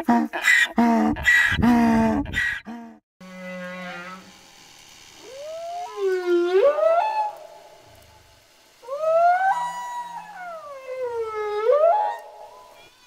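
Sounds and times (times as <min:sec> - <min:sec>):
animal wailing calls: 0:08.8 - 0:12.3.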